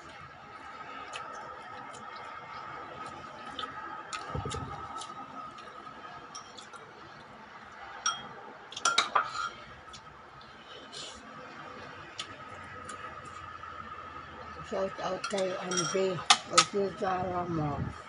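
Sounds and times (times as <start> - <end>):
faint steady hum: 0.0 - 18.0
cutlery clinking against dishes: 8.0 - 9.6, 15.1 - 16.8.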